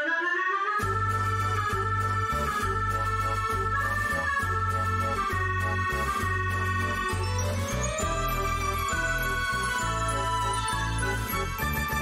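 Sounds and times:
outro tune with bass notes: 0.8 - 12.0.

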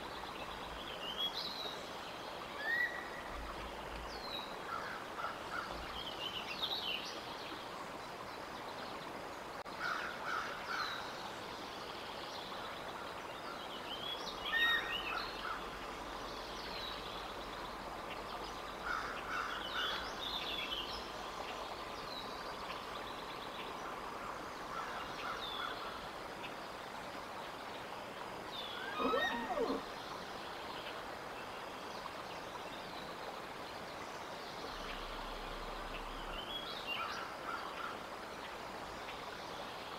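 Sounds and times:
steady outdoor hiss: 0.0 - 39.9
songbirds chirping and singing: 28.6 - 30.0.

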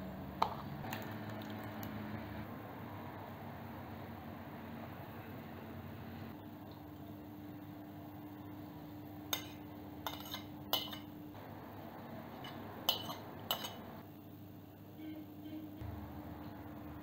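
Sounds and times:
metal spoon clinking on dishes: 9.3 - 11.1, 12.4 - 13.9.

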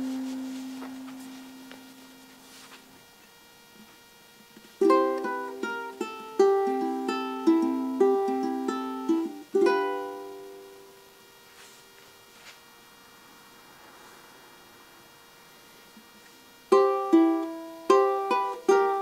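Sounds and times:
fingerpicked ukulele: 4.8 - 11.1, 16.7 - 19.0.

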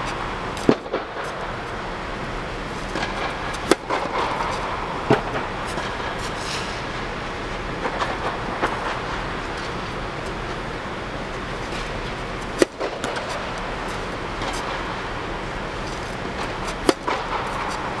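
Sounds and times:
steady background rush: 0.0 - 18.0
tennis racket striking ball: 2.7 - 6.8, 11.6 - 18.0.

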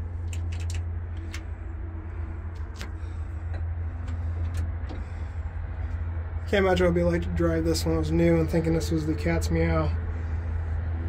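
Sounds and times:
large engine droning: 0.0 - 11.0.

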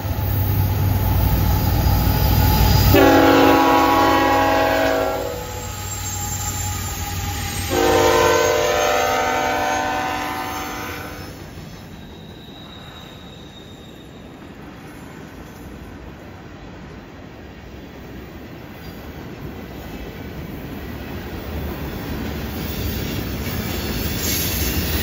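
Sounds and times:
train air horn: 2.8 - 5.9, 7.7 - 11.4.

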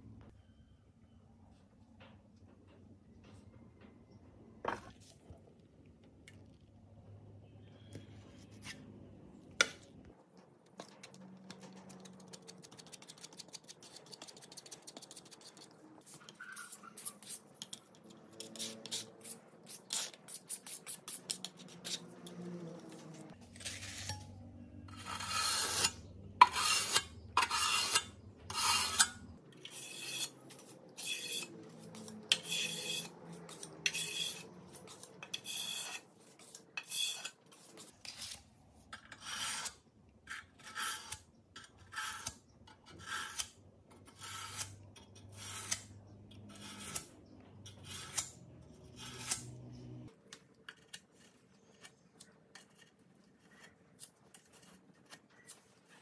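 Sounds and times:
putty knife scraping metal: 10.8 - 24.3, 24.9 - 49.9.

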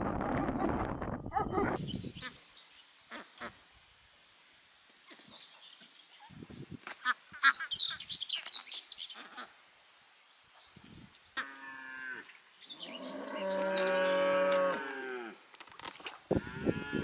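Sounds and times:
cow mooing: 11.4 - 15.4, 16.4 - 17.0.

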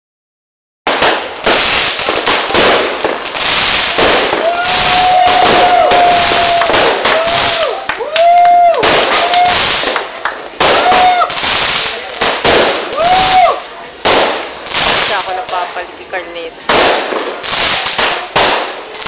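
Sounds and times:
fireworks crackling and popping: 0.8 - 19.0
whistling firework tone: 1.4 - 13.7.

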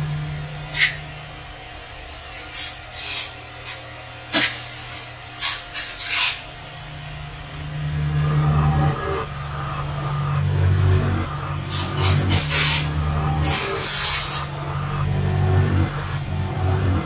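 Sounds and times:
low steady hum: 0.0 - 17.0
short sharp hissing: 4.4 - 6.4.

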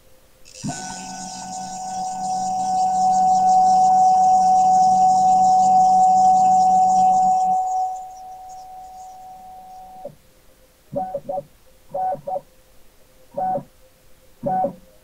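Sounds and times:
stepper motor whine: 0.5 - 10.1.

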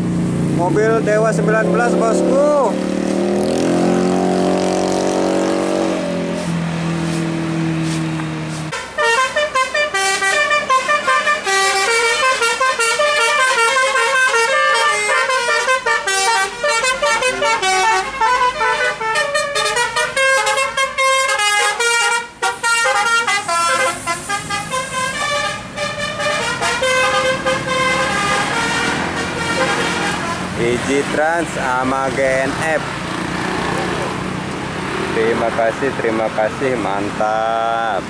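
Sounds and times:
bus horn playing a melody: 3.6 - 30.6.

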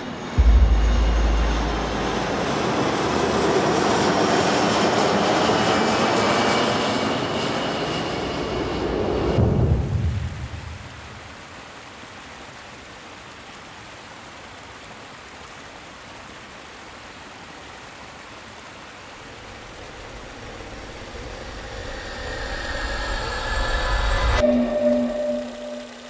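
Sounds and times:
vehicle engine approaching: 0.4 - 5.1.

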